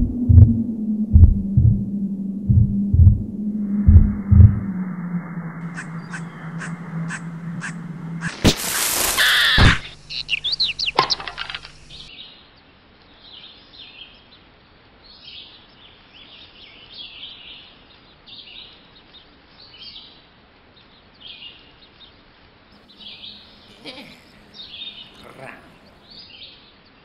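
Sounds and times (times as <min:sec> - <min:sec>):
birds chirping: 0:04.7 - 0:12.1, 0:22.8 - 0:26.4
squawking cries: 0:05.6 - 0:12.1, 0:22.9 - 0:26.2.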